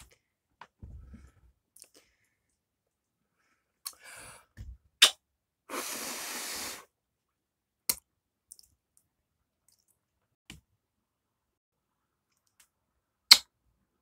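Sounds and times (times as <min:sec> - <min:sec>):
breathy hiss: 0:05.7 - 0:06.9.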